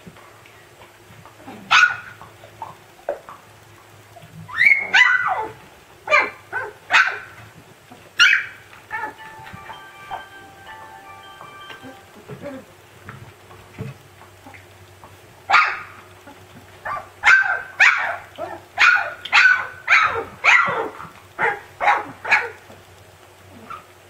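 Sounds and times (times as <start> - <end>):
puppy barking: 1.7 - 2.1, 4.6 - 7.4, 8.2 - 9.2, 15.5 - 15.9, 16.8 - 22.6.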